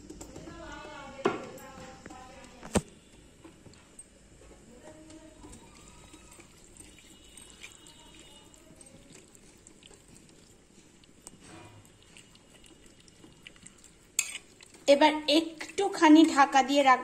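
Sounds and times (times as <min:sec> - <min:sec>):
wet sloshing of stirred chicken: 0:04.6 - 0:16.5.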